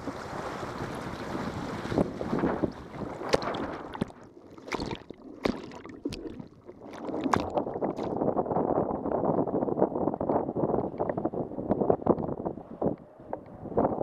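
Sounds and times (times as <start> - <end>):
sharp splashes and drips: 0.0 - 8.2
water rushing past a board: 0.0 - 8.2
wind on microphone: 0.0 - 14.0.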